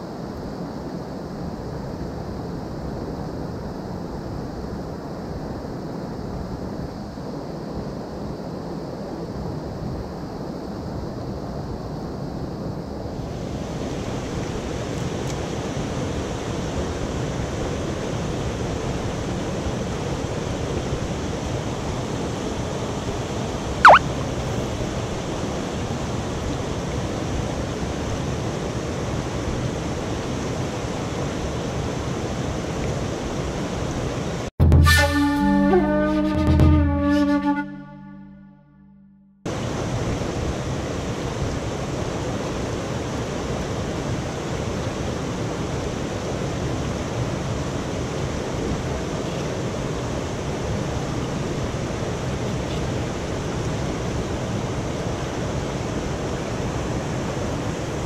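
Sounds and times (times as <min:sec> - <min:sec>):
whistle falling in pitch: 0:23.8 - 0:24.1, 0:34.7 - 0:39.3.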